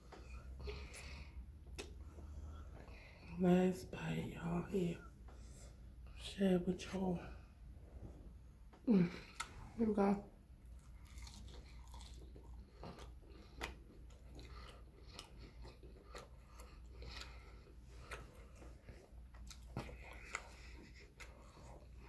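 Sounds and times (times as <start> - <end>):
person chewing: 0.1 - 3.3, 9.2 - 9.6, 10.6 - 22.0.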